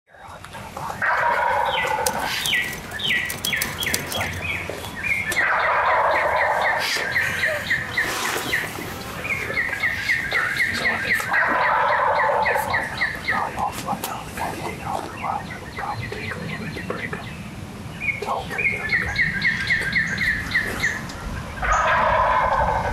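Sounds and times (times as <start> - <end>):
wild turkey gobbling: 0.8 - 17.0, 21.6 - 22.9.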